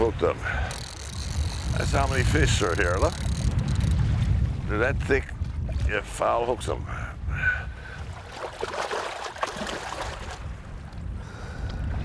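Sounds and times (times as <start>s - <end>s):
wind buffeting microphone: 0.0s - 12.0s
river water splashing: 7.8s - 11.0s.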